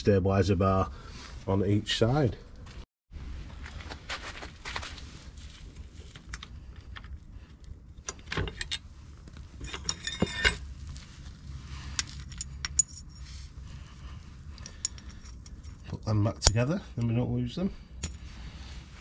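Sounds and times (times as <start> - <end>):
metal pin clinking and jangling: 12.0 - 13.3, 14.5 - 16.6.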